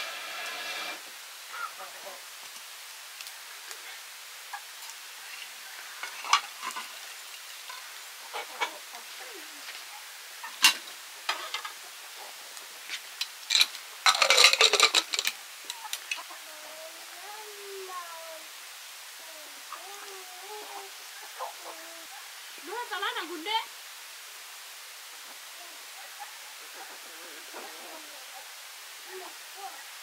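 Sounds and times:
utensil scraping a pot: 0.0 - 1.0.

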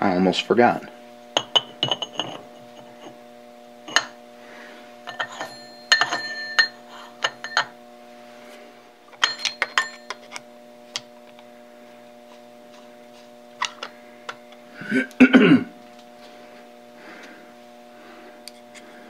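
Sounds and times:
steady low hum: 0.0 - 19.0
metallic clinks and taps: 5.1 - 7.7, 9.2 - 10.4.

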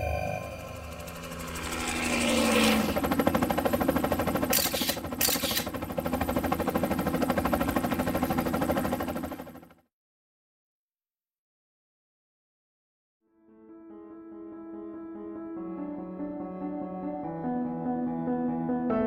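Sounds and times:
rapid pulsing mechanical buzz: 0.1 - 9.6.

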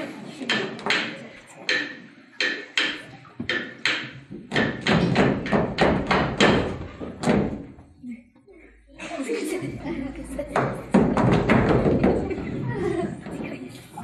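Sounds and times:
sharp rhythmic knocking: 0.5 - 7.7, 10.5 - 12.4.

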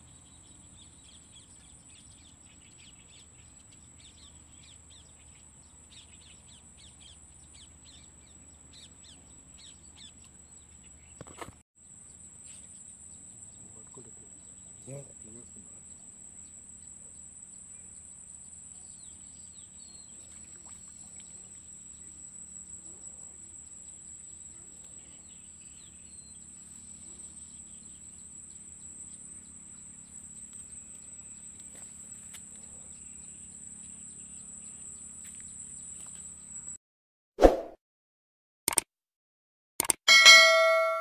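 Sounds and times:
insects trilling: 0.0 - 36.8
faint chirps: 11.9 - 36.7.

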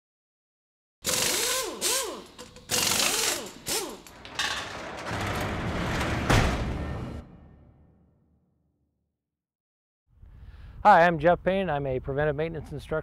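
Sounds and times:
mechanical clanking bursts: 1.0 - 7.3
rattling noise: 1.1 - 7.9.

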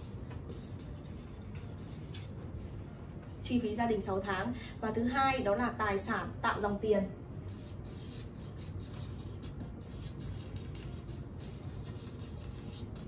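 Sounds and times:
marker scratching on paper: 0.0 - 2.8, 7.5 - 13.0.

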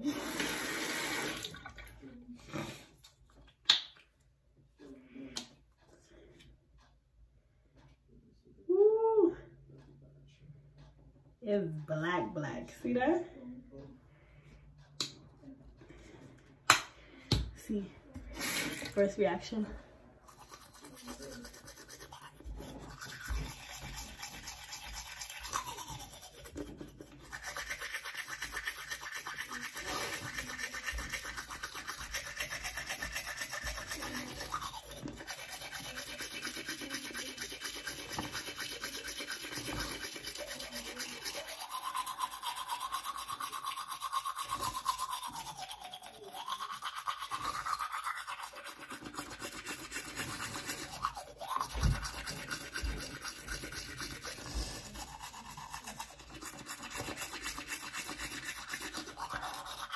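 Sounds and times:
toothbrush scrubbing teeth: 0.0 - 3.7, 18.2 - 59.9.

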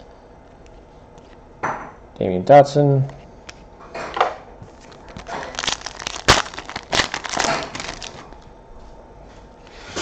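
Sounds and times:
foil wrapper tearing and crinkling: 4.8 - 8.5
sharp foil snaps: 5.0 - 8.4.

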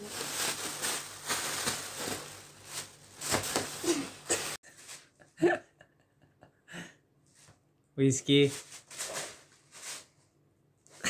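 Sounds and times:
plastic bag crinkling: 0.0 - 4.6.

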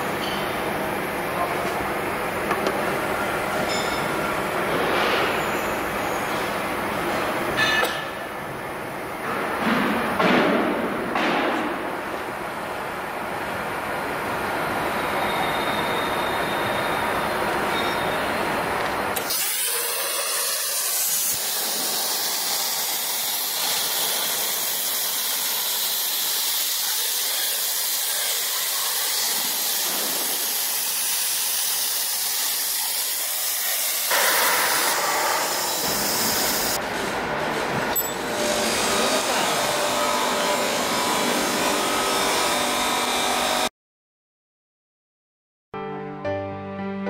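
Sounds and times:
plasma torch hissing: 19.2 - 36.8.

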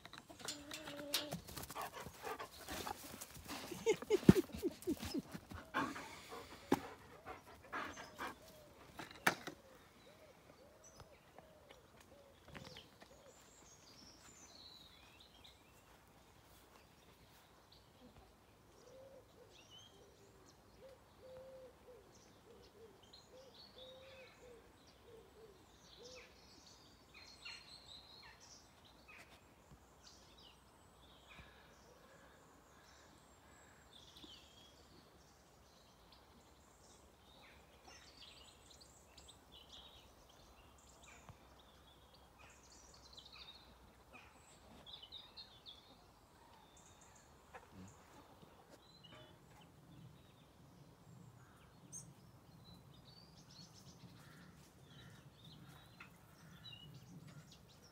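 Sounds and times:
dog panting: 1.6 - 8.7.

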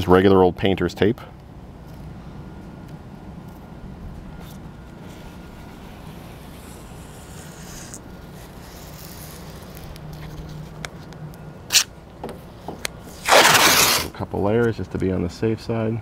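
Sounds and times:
tape ripping off roll: 5.1 - 10.8, 11.7 - 11.9, 13.1 - 14.2.

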